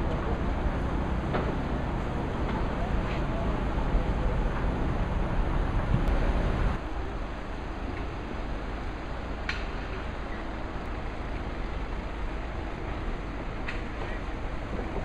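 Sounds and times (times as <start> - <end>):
wind noise on microphone: 0.0 - 8.5
outdoor background hum: 0.0 - 15.0.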